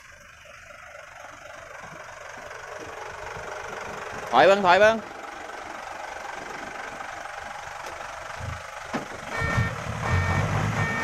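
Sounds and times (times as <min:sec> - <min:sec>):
diesel truck engine idling: 0:00.0 - 0:11.0
reversing alarm beeping: 0:09.3 - 0:11.0.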